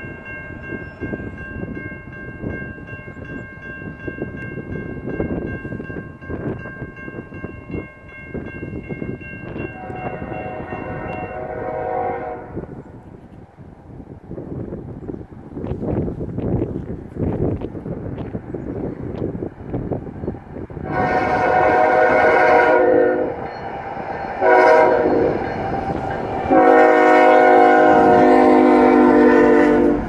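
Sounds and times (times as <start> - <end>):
railroad crossing bell ringing: 0.0 - 12.8, 20.9 - 30.0
wind rumbling on microphone: 0.0 - 30.0
distant locomotive air horn: 9.7 - 12.9, 20.8 - 23.6, 24.4 - 30.0.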